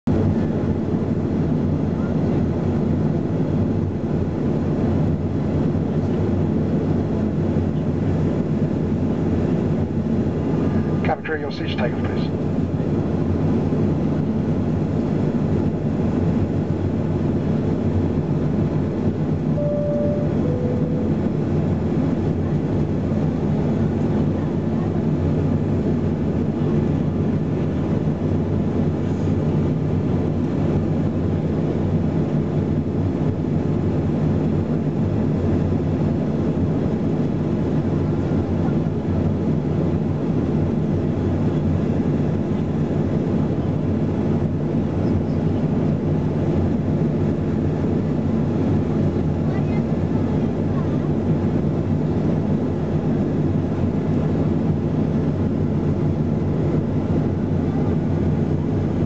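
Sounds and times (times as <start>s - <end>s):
jet engines idling hum: 0.1s - 59.0s
two-note falling tone: 19.6s - 21.6s.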